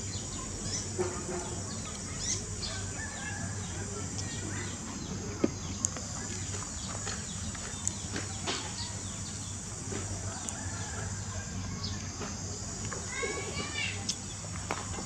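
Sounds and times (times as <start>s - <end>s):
birds chirping: 0.0s - 15.0s
high insect drone: 0.0s - 15.0s.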